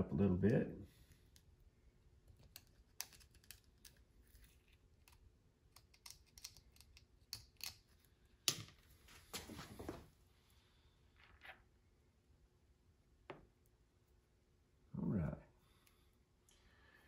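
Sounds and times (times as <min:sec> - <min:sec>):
hands and tools clicking: 0:05.0 - 0:07.9
short scuffing sounds: 0:09.0 - 0:10.1.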